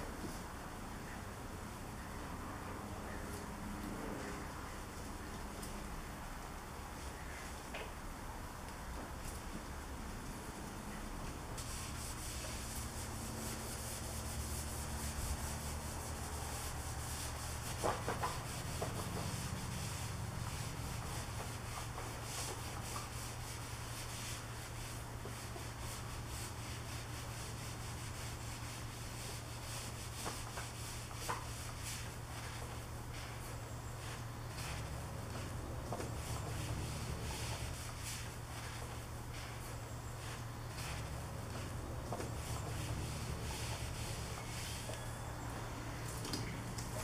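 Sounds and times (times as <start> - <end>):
cloth rubbing on wheel: 11.6 - 45.0.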